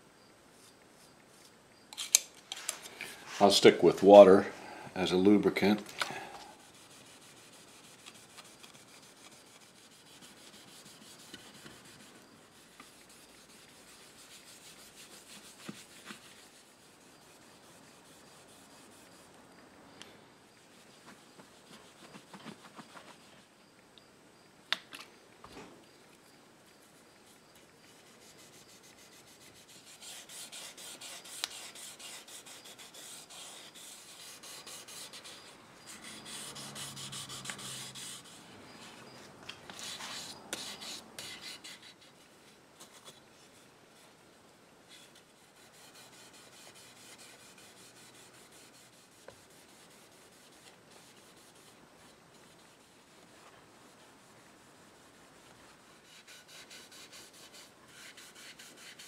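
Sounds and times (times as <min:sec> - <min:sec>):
pad rubbing wood finish: 0:06.6 - 0:19.3, 0:20.7 - 0:23.3, 0:27.9 - 0:39.1, 0:44.9 - 0:59.0.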